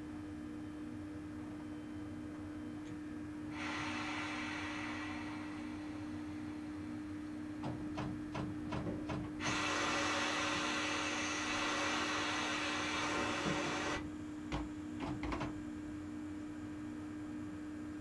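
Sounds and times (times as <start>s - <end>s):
electrical hum: 1.1s - 16.9s
compressed air hissing: 3.5s - 7.2s, 9.4s - 14.0s.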